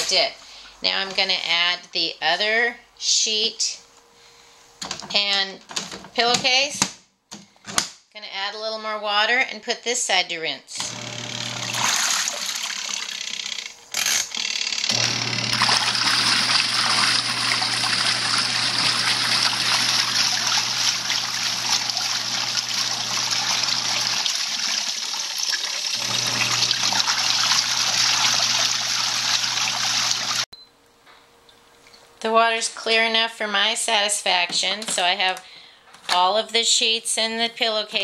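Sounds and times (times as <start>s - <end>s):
washing machine motor hum: 10.8s - 30.5s
water churning and sloshing: 15.0s - 30.4s.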